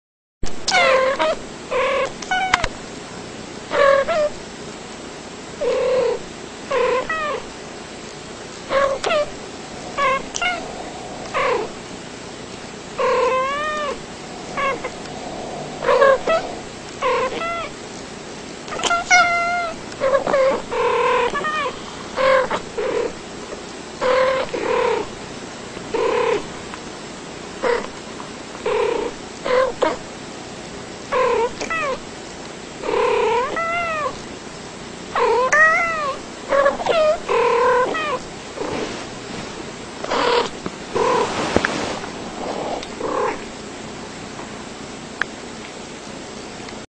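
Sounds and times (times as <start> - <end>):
cats chirping meows: 8.7 - 11.8, 13.0 - 17.7, 18.7 - 20.6.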